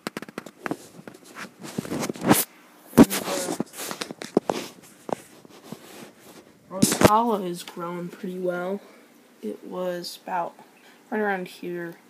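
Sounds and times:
camera handling noise: 0:00.0 - 0:05.8.

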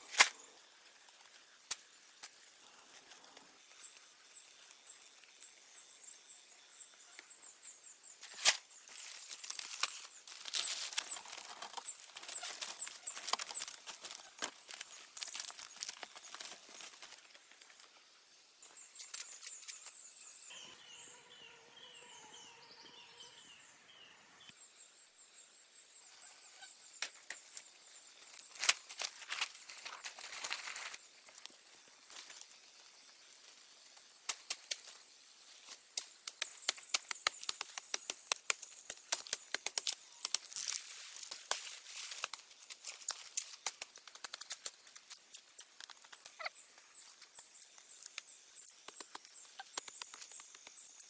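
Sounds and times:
dry thatch crackling and rustling: 0:08.2 - 0:17.9, 0:27.2 - 0:51.0.

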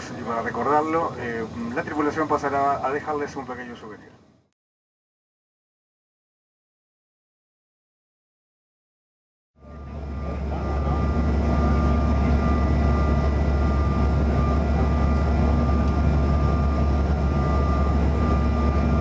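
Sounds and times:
jet airliner cabin roar: 0:09.6 - 0:19.0
jet engine whining tones: 0:09.6 - 0:19.0.

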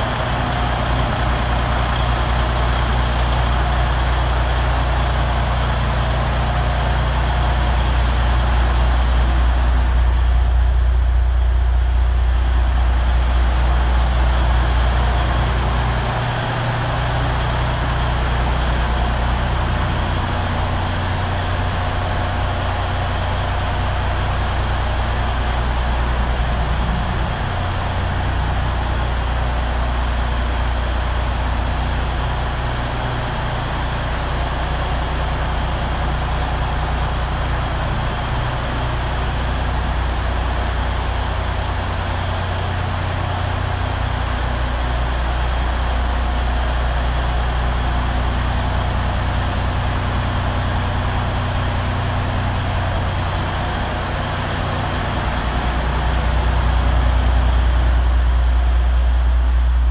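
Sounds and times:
diesel truck engine idling: 0:00.0 - 0:59.9.

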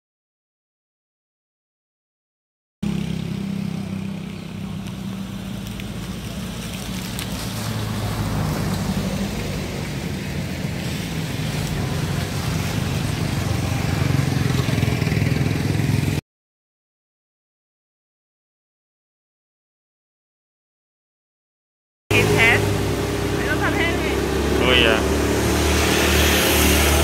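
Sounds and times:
vehicle engine running: 0:02.8 - 0:16.2, 0:22.1 - 0:27.0.

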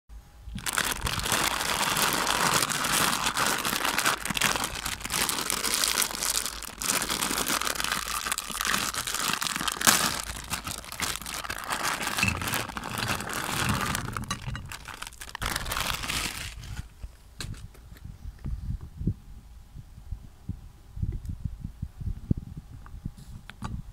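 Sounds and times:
plastic snack bag crinkling: 0:00.5 - 0:17.0.

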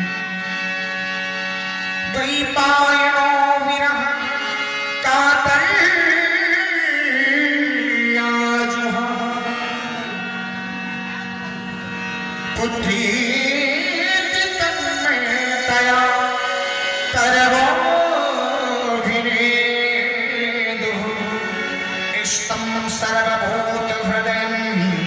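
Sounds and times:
held keyboard chords: 0:00.0 - 0:25.0
man singing: 0:02.0 - 0:10.4, 0:12.4 - 0:25.0.

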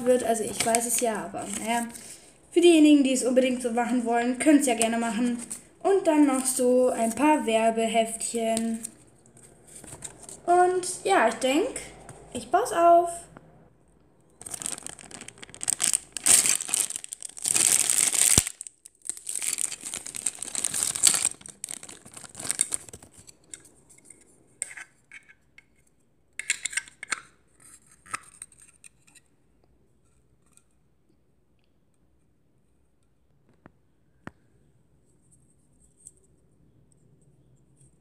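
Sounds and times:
plastic bag crinkling and tearing: 0:14.4 - 0:23.4
small plastic parts clicking: 0:26.4 - 0:27.3.

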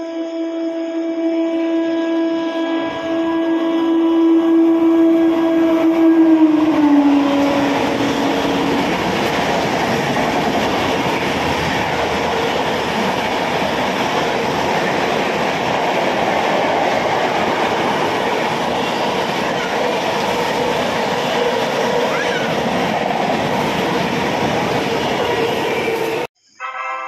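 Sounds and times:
locomotive horn: 0:00.0 - 0:10.1, 0:24.6 - 0:27.0
train coaches rolling on rails: 0:02.8 - 0:26.3.

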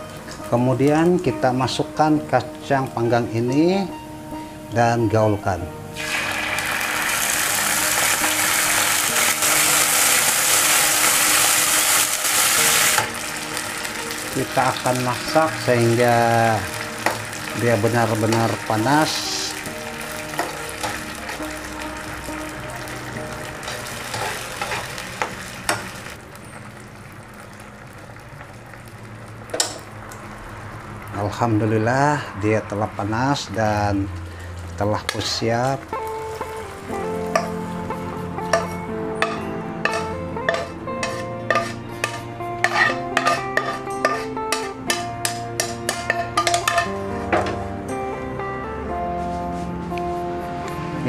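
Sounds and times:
beans sizzling in hot oil: 0:05.9 - 0:31.2, 0:34.2 - 0:37.8, 0:38.4 - 0:47.2
spatula knocking and scraping pan: 0:38.5 - 0:47.6.

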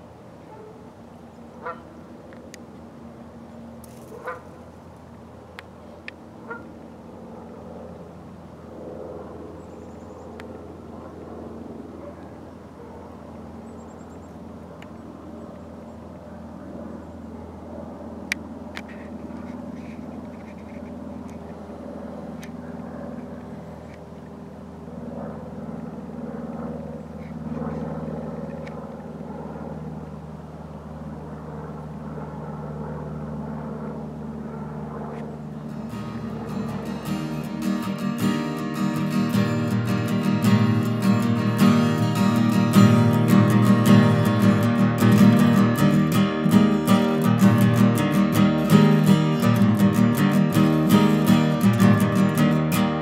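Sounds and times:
vehicle engine humming: 0:16.4 - 0:53.0.

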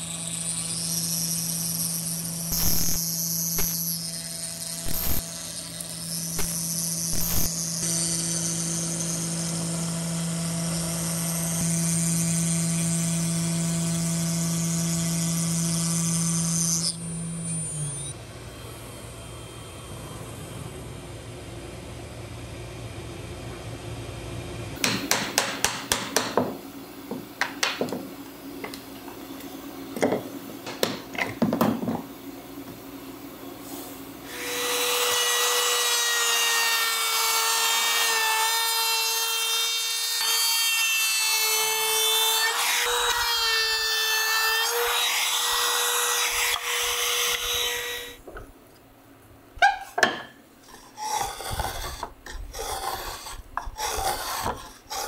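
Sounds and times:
handheld power tool whining: 0:00.0 - 0:20.6, 0:34.2 - 0:48.3, 0:50.6 - 0:55.0
cnc router humming: 0:00.0 - 0:24.2.

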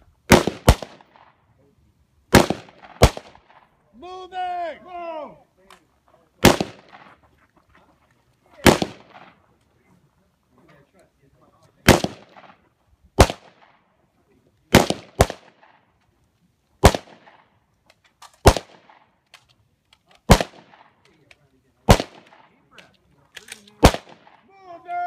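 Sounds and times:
gunshots with echo: 0:06.4 - 0:07.1, 0:08.6 - 0:09.4, 0:11.8 - 0:12.6.

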